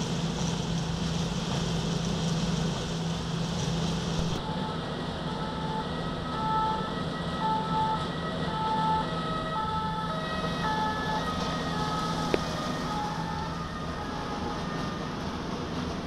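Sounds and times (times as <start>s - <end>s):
low engine drone: 0.0s - 16.0s
ambulance siren tones: 4.3s - 16.0s.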